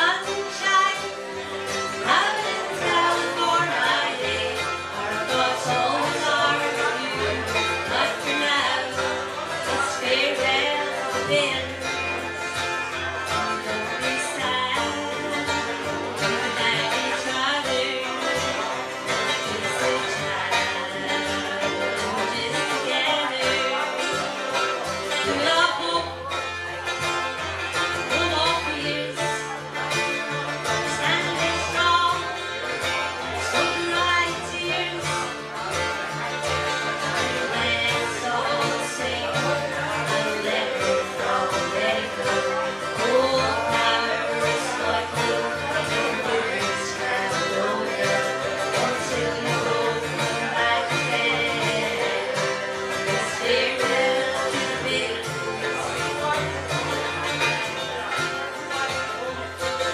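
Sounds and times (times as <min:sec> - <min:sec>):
banjo picked steadily: 0:00.0 - 0:59.9
person singing: 0:00.0 - 0:59.9.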